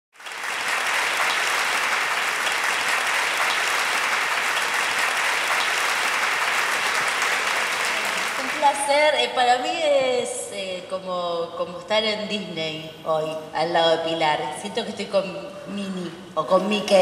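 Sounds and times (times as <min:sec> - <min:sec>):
audience applauding: 0:00.2 - 0:08.9.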